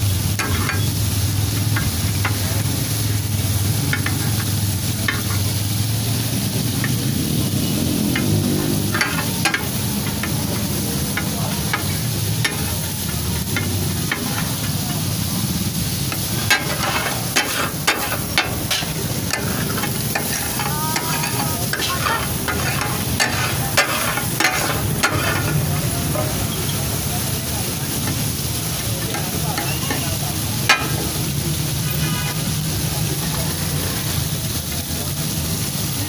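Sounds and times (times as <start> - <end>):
fish sizzling on metal griddle: 0.0 - 36.0
metal spatulas clacking on griddle: 0.4 - 0.9, 3.9 - 5.4, 8.1 - 14.8, 16.1 - 25.6, 29.0 - 31.1.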